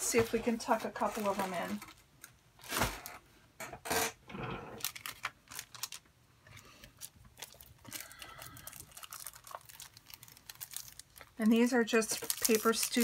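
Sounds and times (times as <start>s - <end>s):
soft crinkle: 0.1s - 3.2s, 4.8s - 13.0s
plastic sticker pack crackling: 4.8s - 6.1s, 7.0s - 13.0s.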